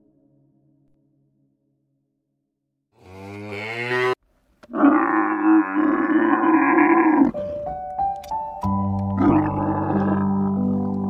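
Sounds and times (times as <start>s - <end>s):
cows mooing: 3.0s - 7.4s, 9.1s - 11.0s.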